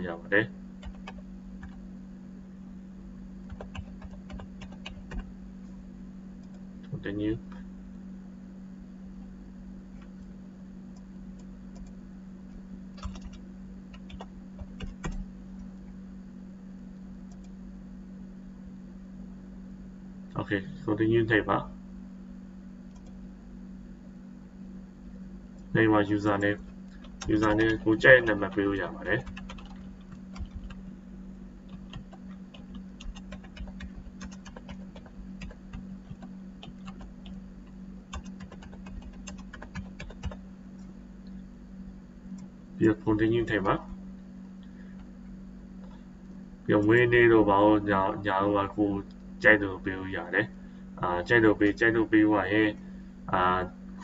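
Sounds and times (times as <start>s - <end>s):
low electrical hum: 0.0s - 54.0s
keyboard keystrokes: 3.5s - 5.2s, 13.0s - 15.2s, 29.2s - 30.8s, 38.1s - 40.4s.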